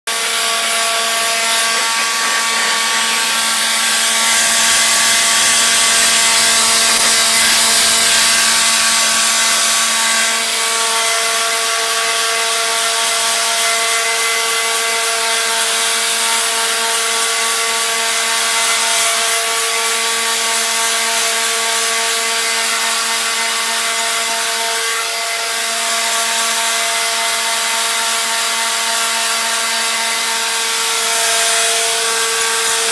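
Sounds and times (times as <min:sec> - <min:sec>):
leaf blower running: 0:00.1 - 0:10.6, 0:17.2 - 0:25.2.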